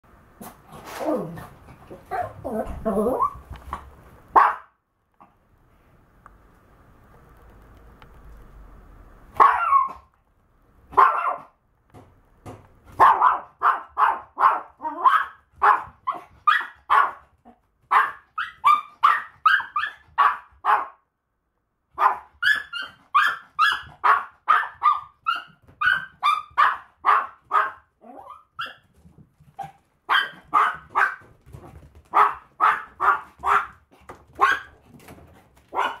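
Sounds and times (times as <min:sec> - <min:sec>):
small dog barking: 0:04.3 - 0:04.8, 0:09.4 - 0:10.1, 0:10.9 - 0:11.6, 0:12.9 - 0:17.2, 0:17.9 - 0:21.0, 0:21.9 - 0:28.8, 0:29.6 - 0:31.3, 0:32.1 - 0:33.8, 0:34.4 - 0:34.8, 0:35.7 - 0:36.0.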